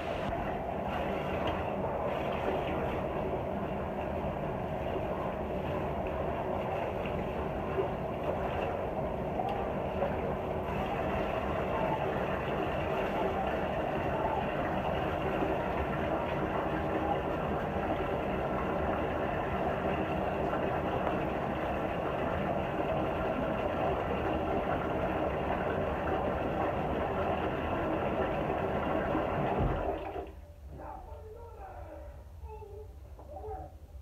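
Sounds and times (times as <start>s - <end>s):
tap water splashing into tub: 28.2s - 30.3s.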